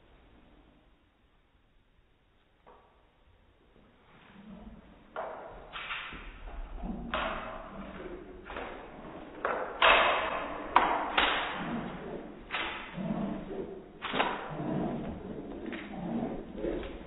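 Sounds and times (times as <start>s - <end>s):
dog paws thudding on stairs: 5.2s - 17.0s.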